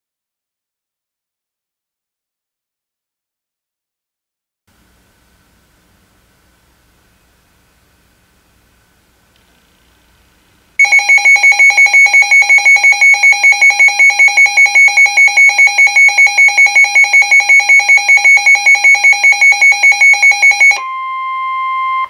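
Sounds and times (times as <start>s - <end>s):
steady single alarm tone: 10.8s - 22.0s
two-tone electronic alarm beeping: 10.8s - 22.0s.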